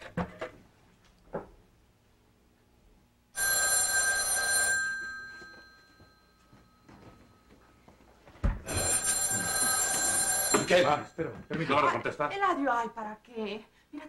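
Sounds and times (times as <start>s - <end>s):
telephone bell ringing: 3.3s - 7.5s, 8.7s - 11.2s.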